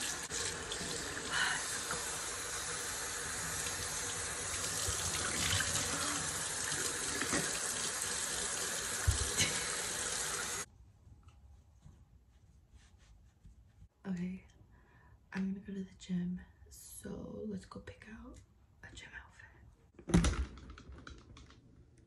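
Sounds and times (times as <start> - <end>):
tap running: 0.0 - 10.6
water splashes from face washing: 0.0 - 10.7.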